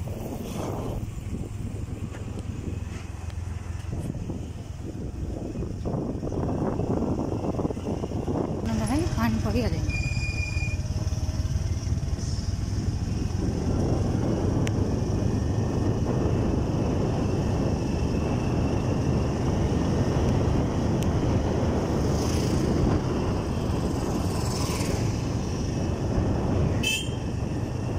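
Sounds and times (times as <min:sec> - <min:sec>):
motorcycle engine low-pitched: 0:00.0 - 0:27.9
road and wind noise: 0:00.0 - 0:27.9.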